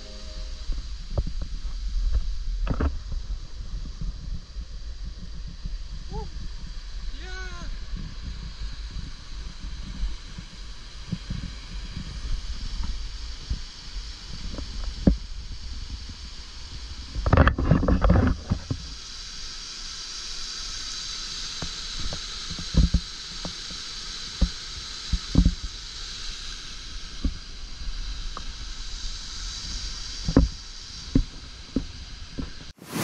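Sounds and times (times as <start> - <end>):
waterfall rushing over rocks: 32.8 - 33.0.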